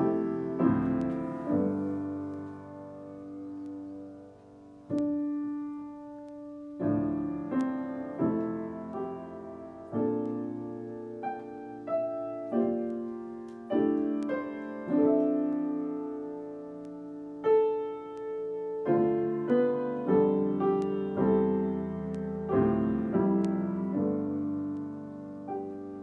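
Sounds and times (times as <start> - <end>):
slow solo piano chords: 0.0 - 26.0.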